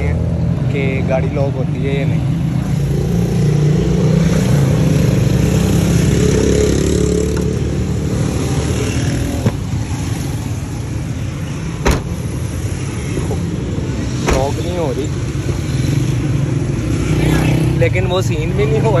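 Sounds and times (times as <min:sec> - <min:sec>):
car hatch thumping shut: 0:09.4 - 0:09.6, 0:11.8 - 0:12.3.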